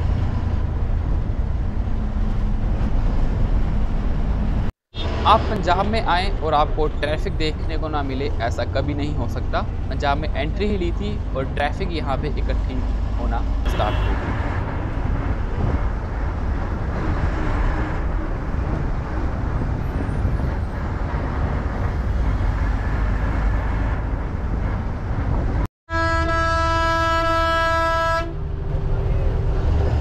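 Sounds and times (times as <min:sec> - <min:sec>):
bus engine and road noise: 0:00.0 - 0:30.0
vehicle horn long note: 0:13.7 - 0:14.3, 0:25.9 - 0:28.4.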